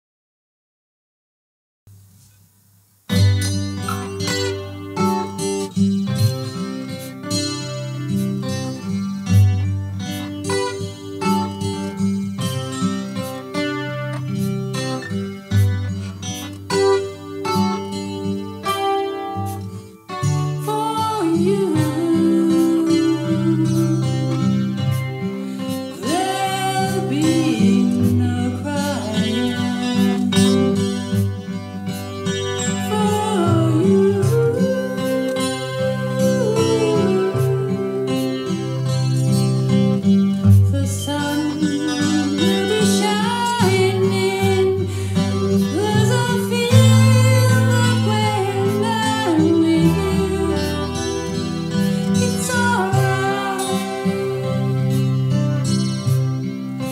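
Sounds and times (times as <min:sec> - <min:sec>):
acoustic guitar chords: 0:01.9 - 0:56.9
woman singing: 0:20.5 - 0:24.8, 0:25.9 - 0:30.9, 0:32.7 - 0:39.1, 0:40.6 - 0:55.4.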